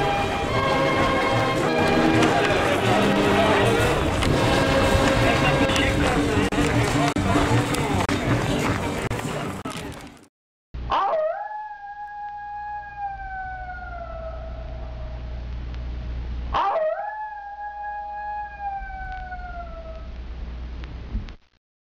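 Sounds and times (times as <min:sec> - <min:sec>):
wolf howling: 0:10.9 - 0:15.3, 0:16.5 - 0:20.1
low steady rumble: 0:13.7 - 0:16.6, 0:18.8 - 0:21.3.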